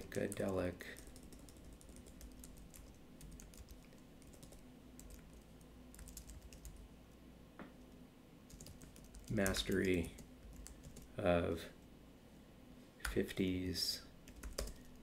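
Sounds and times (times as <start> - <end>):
typing on keyboard: 0.0 - 6.8, 8.5 - 11.1, 14.3 - 15.0.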